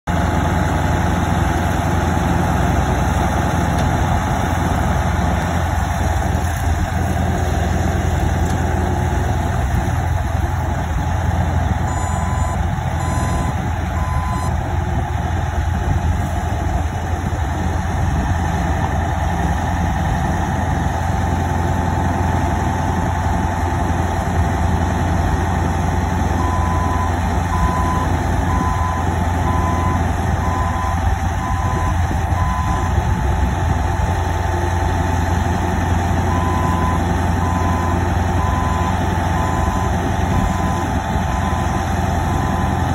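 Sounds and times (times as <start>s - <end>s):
reversing alarm beeps: 11.8s - 14.6s, 26.4s - 33.0s, 36.3s - 42.9s.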